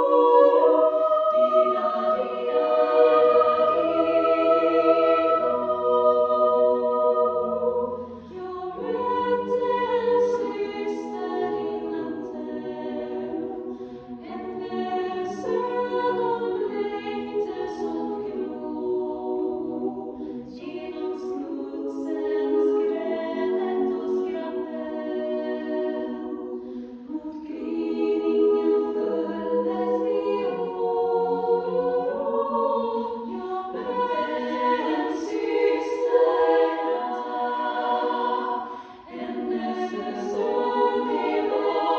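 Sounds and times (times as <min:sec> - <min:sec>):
female choir singing a cappella: 0:00.0 - 0:41.9.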